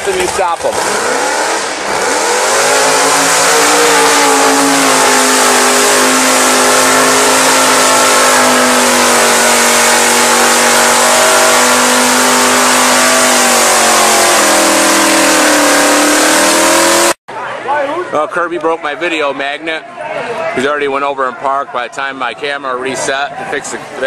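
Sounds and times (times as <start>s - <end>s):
car engine revving high: 0.6s - 17.2s.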